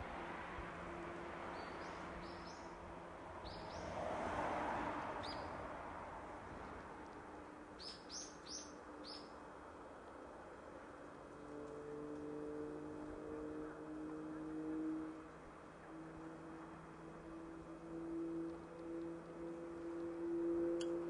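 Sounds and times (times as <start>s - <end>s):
small bird chirping: 7.8s - 9.3s.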